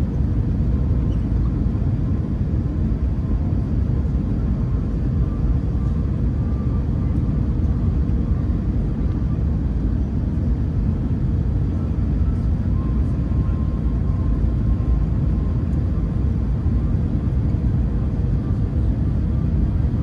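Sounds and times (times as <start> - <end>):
airplane cabin low rumble: 0.0 - 20.0.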